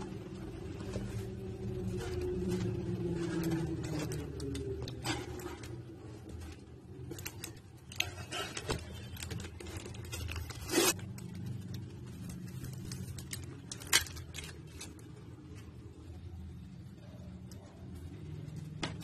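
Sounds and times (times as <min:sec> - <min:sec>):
cardboard rustling and scraping: 0:00.4 - 0:11.2.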